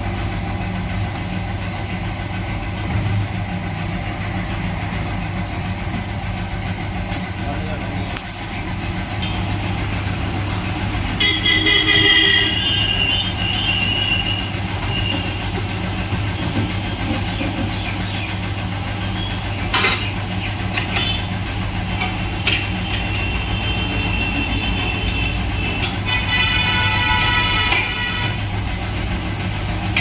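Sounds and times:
tyre machine humming: 8.3s - 30.0s.

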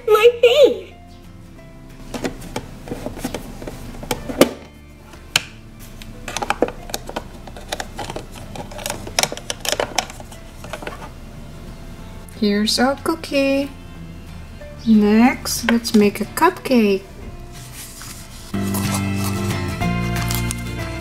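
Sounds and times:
background music: 0.0s - 21.0s
plastic spatula scraping tray: 2.2s - 4.4s, 6.3s - 11.2s.

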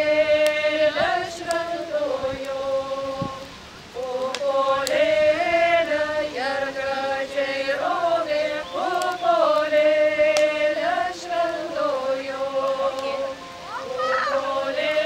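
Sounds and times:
women singing unaccompanied: 0.0s - 15.0s.

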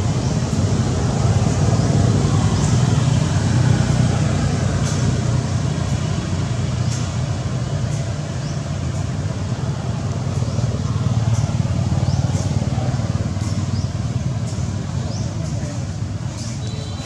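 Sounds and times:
faint high chirp: 16.3s - 17.0s.

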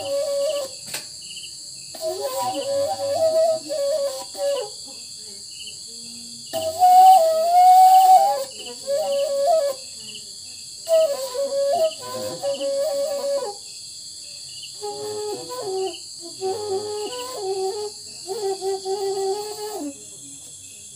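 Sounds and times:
bamboo flute melody: 0.0s - 1.0s, 1.9s - 5.0s, 6.5s - 10.1s, 10.8s - 13.7s, 14.7s - 20.2s
crickets chirping: 0.0s - 20.9s.

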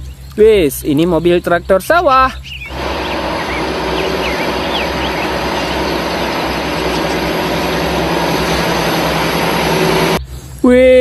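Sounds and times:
tractor diesel engine under load: 2.7s - 10.2s.

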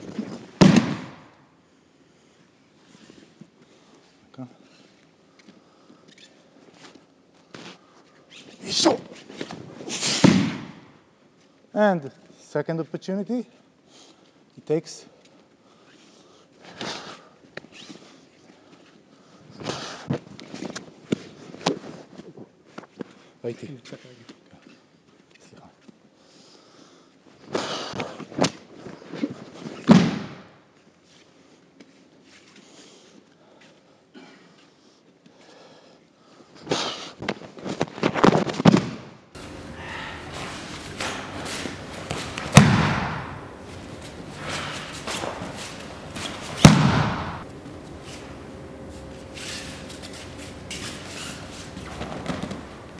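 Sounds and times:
sharp smack: 0.6s - 1.3s, 10.0s - 10.8s, 40.3s - 43.6s, 44.3s - 47.4s
body thudding on mat: 39.4s - 48.4s, 50.9s - 52.9s
cloth rustling: 39.4s - 52.9s
faint steady hum: 39.4s - 52.9s
feet scuffing on mats: 39.4s - 52.9s
short swishes: 39.4s - 52.9s.

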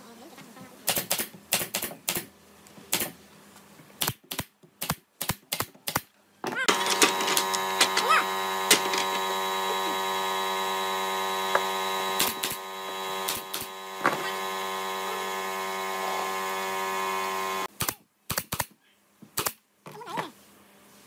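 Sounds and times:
brad nailer snapping: 6.7s - 10.2s, 11.0s - 15.3s
air compressor motor hum: 6.7s - 17.7s.

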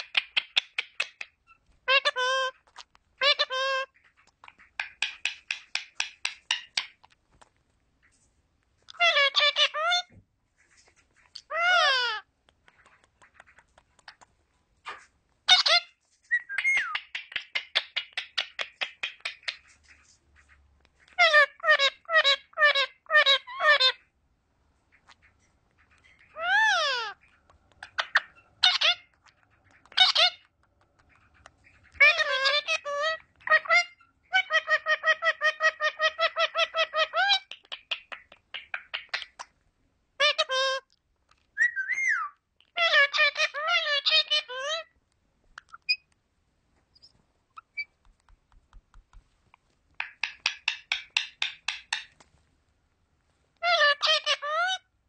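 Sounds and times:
parakeet chattering: 0.0s - 7.2s, 8.9s - 10.1s, 11.3s - 19.7s, 24.9s - 39.6s, 46.9s - 48.0s, 50.0s - 52.2s, 53.6s - 54.8s
soft bird chirps and clicks: 0.0s - 10.2s, 12.3s - 23.9s, 24.9s - 34.4s, 37.1s - 39.6s, 40.3s - 46.2s, 46.9s - 52.4s
parakeet calling rapid notes: 50.0s - 52.1s.

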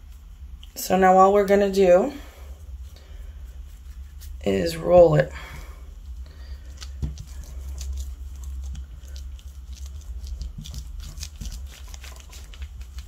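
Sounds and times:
hands rolling putty on plastic: 6.7s - 13.0s.

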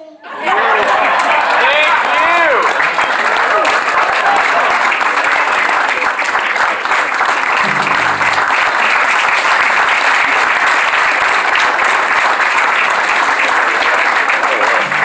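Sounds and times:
audience applauding: 0.4s - 15.0s.

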